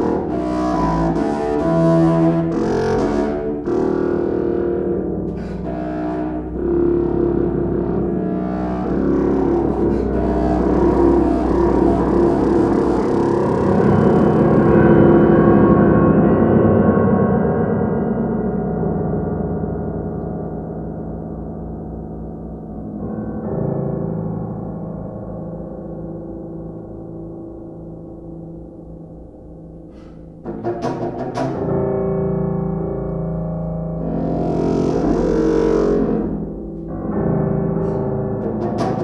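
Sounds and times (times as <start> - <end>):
contrabassoon low notes: 0.0 - 14.8, 29.7 - 39.0
piano chords: 0.0 - 39.0.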